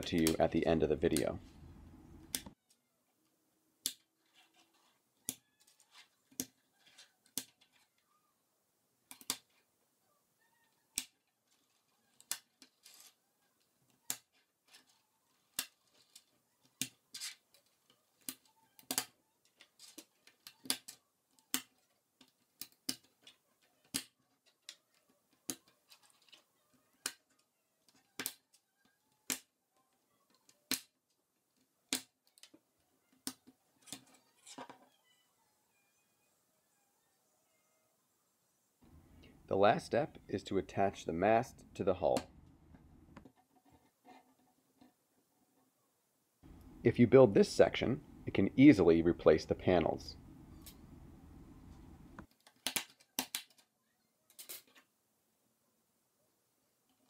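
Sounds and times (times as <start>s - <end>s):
plastic pieces clicking together: 13.9s - 29.5s, 52.2s - 53.7s, 54.3s - 54.8s.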